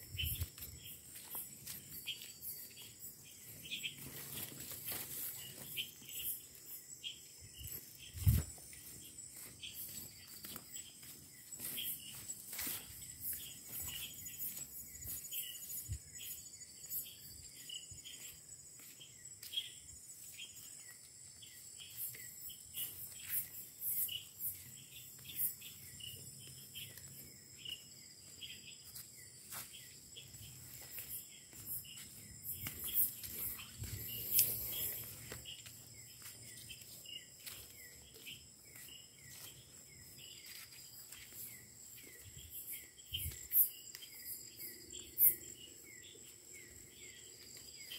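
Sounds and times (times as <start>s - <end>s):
footsteps: 0.0s - 6.8s, 7.5s - 16.0s, 24.4s - 44.2s
crickets trilling: 0.0s - 47.9s
insect chirping: 0.0s - 47.9s.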